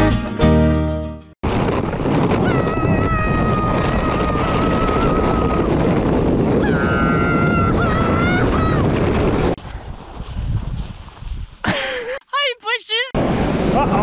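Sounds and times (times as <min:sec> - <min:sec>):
sled rushing over snow: 0:01.4 - 0:11.7.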